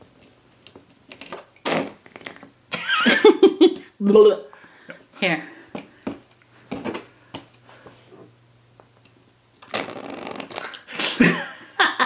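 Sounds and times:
slime slurping suction: 0:09.6 - 0:10.8.

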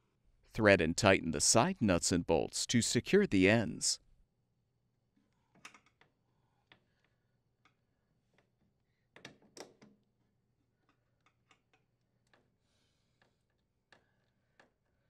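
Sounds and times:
clicks and taps of metal parts: 0:10.8 - 0:12.5.

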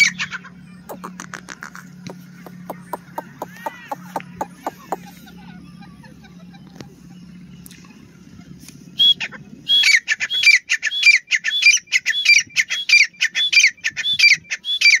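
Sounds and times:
francolin calling: 0:00.0 - 0:05.8
low steady hum: 0:00.0 - 0:15.0.

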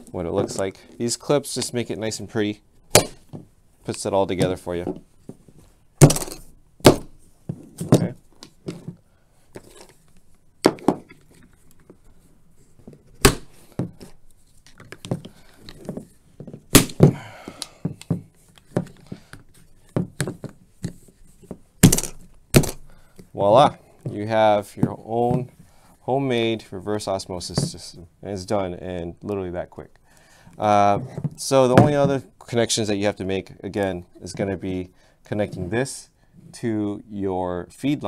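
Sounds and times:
plastic handling noise: 0:00.0 - 0:02.0, 0:02.8 - 0:25.7.

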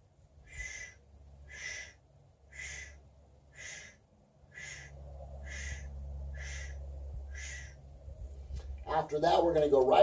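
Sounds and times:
wind rumble on microphone: 0:06.8 - 0:09.0.

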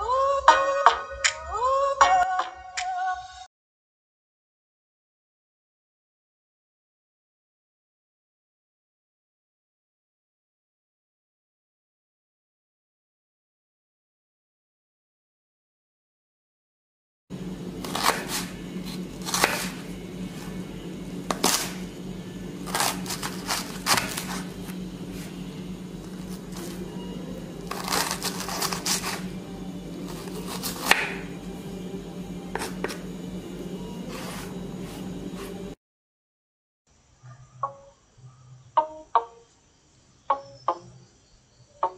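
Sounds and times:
steady low hum: 0:17.3 - 0:35.8
knife chopping on wooden board: 0:17.8 - 0:20.6, 0:21.2 - 0:21.9, 0:22.6 - 0:25.2, 0:27.7 - 0:29.3, 0:30.0 - 0:31.3, 0:32.5 - 0:33.0.

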